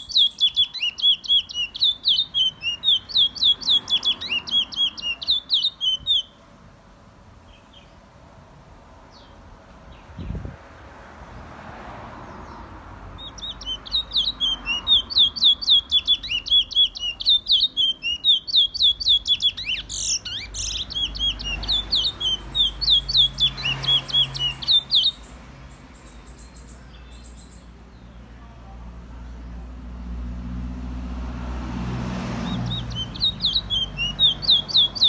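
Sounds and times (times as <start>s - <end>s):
songbird whistling repeated notes: 0.0s - 6.4s, 13.2s - 25.3s, 32.4s - 35.0s.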